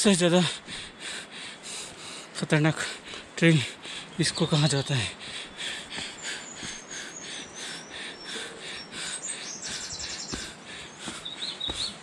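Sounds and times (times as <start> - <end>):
birds chirping: 0.0 - 12.0
footsteps on stone steps: 0.4 - 2.2, 2.8 - 12.0
bird trill: 5.6 - 12.0.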